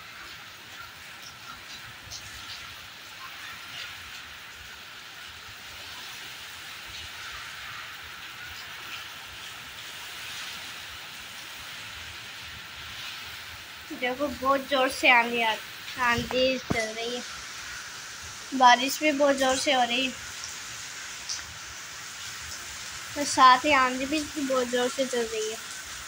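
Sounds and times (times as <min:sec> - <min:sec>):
heavy rain pouring: 0:00.0 - 0:26.0.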